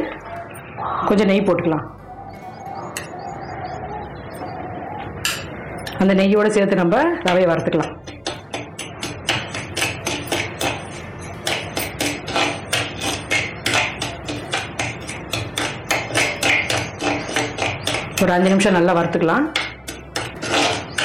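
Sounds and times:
ladle scraping clay pot: 7.1s - 21.0s.

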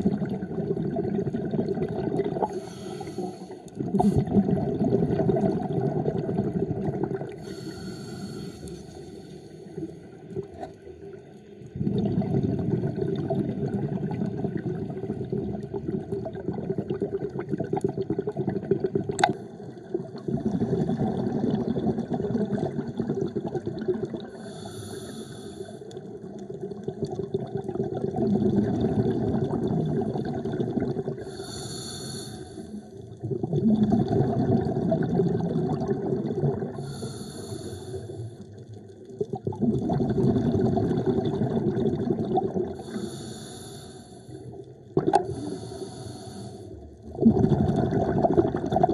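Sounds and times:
underwater regulator breathing: 2.4s - 4.4s, 7.4s - 9.7s, 24.3s - 26.0s, 31.2s - 32.9s, 36.7s - 38.5s, 42.8s - 44.4s, 45.2s - 46.8s.

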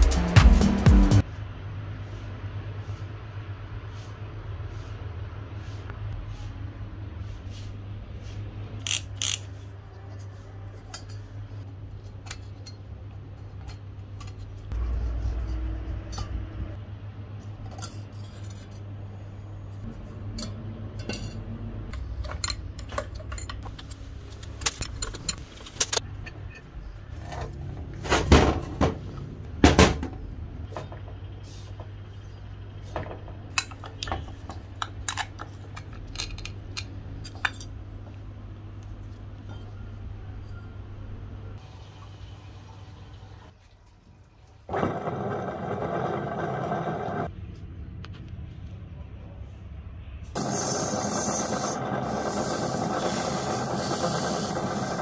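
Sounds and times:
metal tools clinking and knocking: 20.4s - 26.7s, 33.6s - 37.8s.

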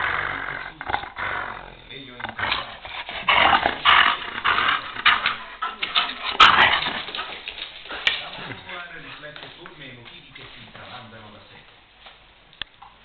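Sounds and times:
dog growling: 0.0s - 8.7s.

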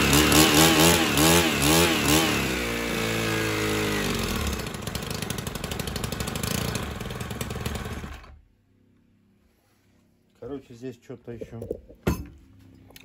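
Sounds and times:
brushcutter engine revving: 0.0s - 8.4s.

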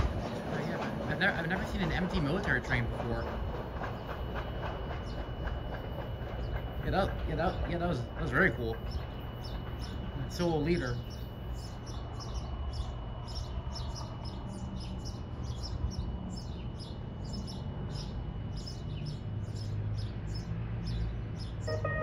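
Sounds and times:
freight train rumble: 0.0s - 22.0s
small birds chirping: 0.2s - 22.0s
faint high tone: 21.7s - 22.0s.

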